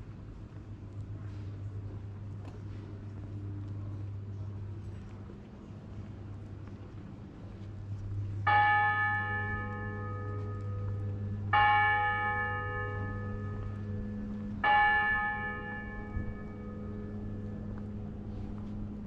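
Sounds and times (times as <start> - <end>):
low steady hum: 0.0 - 19.0
large bell tolling: 8.2 - 19.0.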